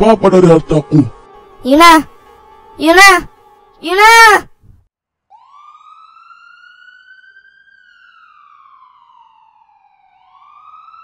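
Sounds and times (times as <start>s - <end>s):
emergency siren wailing: 5.3s - 11.0s.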